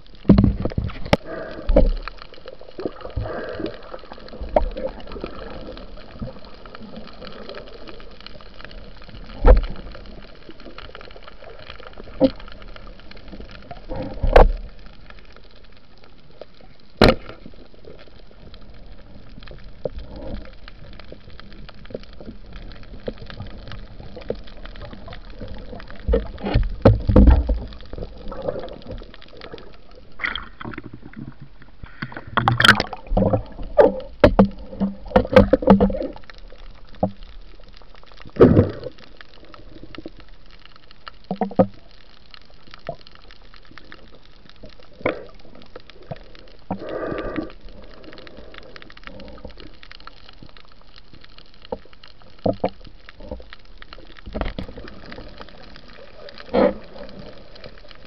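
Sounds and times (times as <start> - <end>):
water bubbling and churning: 0.0 - 58.0
sharp clicks and knocks: 0.2 - 2.0, 26.1 - 27.7, 32.0 - 36.1
underwater hiss: 0.9 - 8.1, 38.4 - 40.0, 44.9 - 49.7, 54.7 - 58.0.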